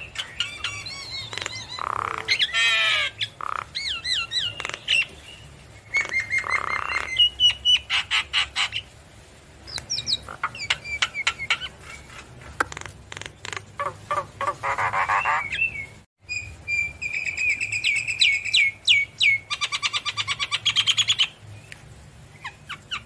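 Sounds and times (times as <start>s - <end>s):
bird squawk: 0.0s - 5.3s, 5.9s - 8.9s, 12.7s - 15.9s
bird singing: 0.0s - 8.8s, 9.7s - 12.2s, 13.8s - 21.8s.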